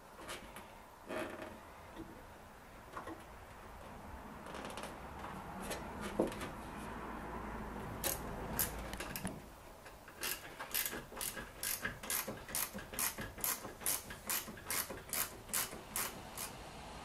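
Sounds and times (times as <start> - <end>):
ratchet spanner clicking: 8.0 - 9.3, 10.2 - 16.6.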